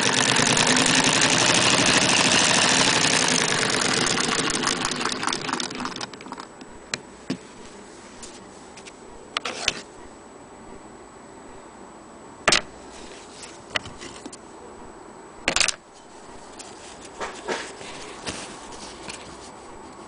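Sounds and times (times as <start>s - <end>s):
steady background hiss: 6.1s - 20.0s
cloth rustling: 16.0s - 20.0s.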